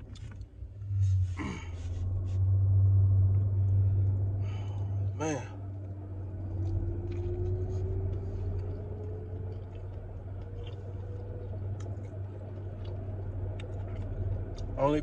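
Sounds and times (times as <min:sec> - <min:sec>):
car engine and air conditioning hum: 0:00.0 - 0:15.0
faint rising whine: 0:00.0 - 0:15.0
chewing clicks: 0:05.7 - 0:14.8.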